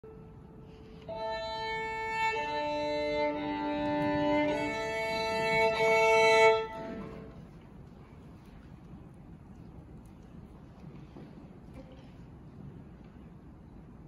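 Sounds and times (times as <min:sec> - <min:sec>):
slow sustained music chords: 0:00.1 - 0:07.6.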